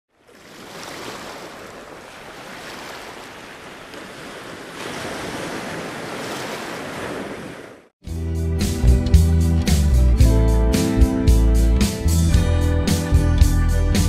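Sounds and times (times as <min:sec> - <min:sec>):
ocean surf breaking on beach: 0:00.2 - 0:07.9.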